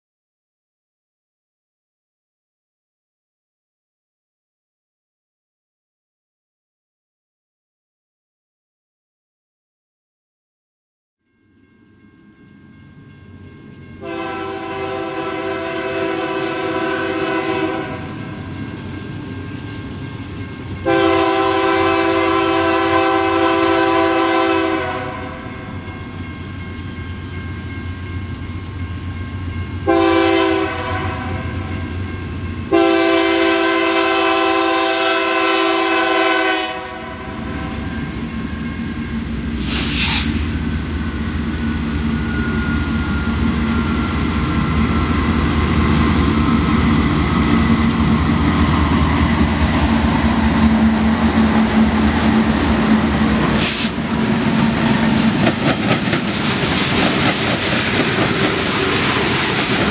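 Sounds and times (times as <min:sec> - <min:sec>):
train rumbling: 0:11.2 - 0:59.9
locomotive engine: 0:11.6 - 0:59.9
locomotive air horn: 0:14.0 - 0:18.2, 0:20.8 - 0:25.4, 0:29.8 - 0:31.7, 0:32.7 - 0:37.9, 0:39.6 - 0:40.5, 0:48.8 - 0:55.0.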